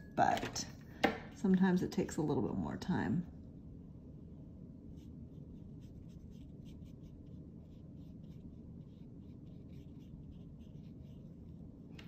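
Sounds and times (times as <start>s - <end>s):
scratchy paintbrush strokes: 4.8s - 12.0s.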